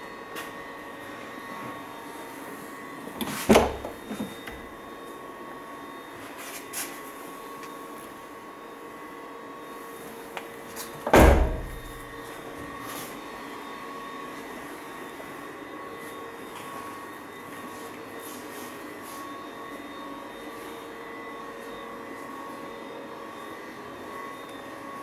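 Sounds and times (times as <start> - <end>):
car door thump: 11.1 - 11.9.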